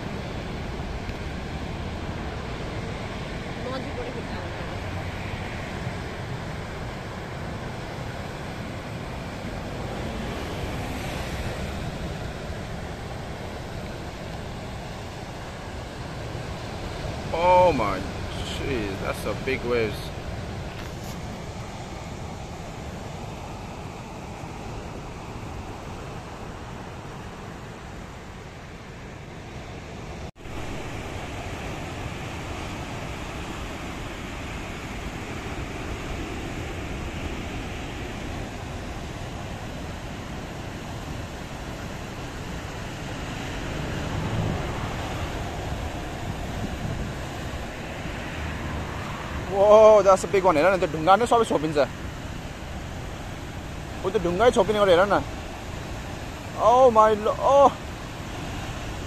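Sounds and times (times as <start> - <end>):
ocean surf breaking: 0.0 - 59.0
wind buffeting microphone: 29.7 - 49.6.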